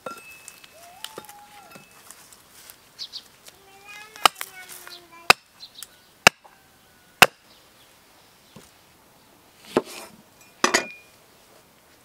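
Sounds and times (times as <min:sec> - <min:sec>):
axe chopping log: 0:06.3 - 0:06.5, 0:07.2 - 0:07.4.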